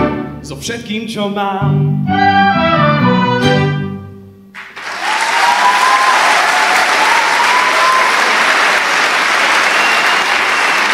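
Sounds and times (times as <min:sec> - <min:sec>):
audience applauding: 0:04.6 - 0:10.9.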